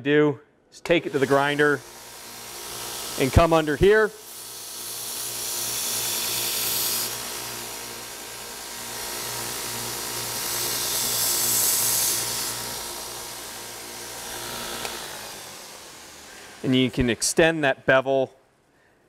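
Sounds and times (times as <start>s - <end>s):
belt grinder hissing on steel: 0.8s - 17.6s
motor humming: 0.9s - 17.2s.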